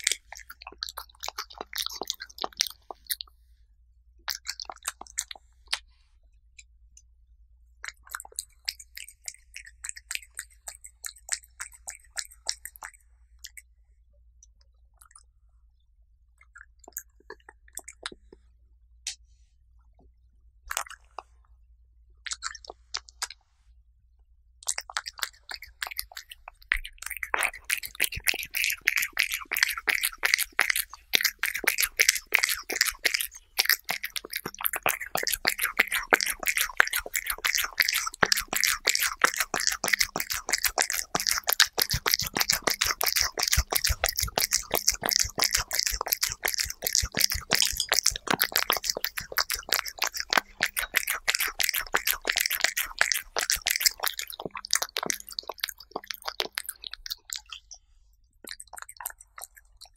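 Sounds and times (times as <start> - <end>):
cat licking and chewing: 0.0 - 3.4, 4.3 - 5.9, 7.8 - 13.7, 16.4 - 18.4, 20.7 - 21.4, 22.3 - 23.4, 24.6 - 59.9.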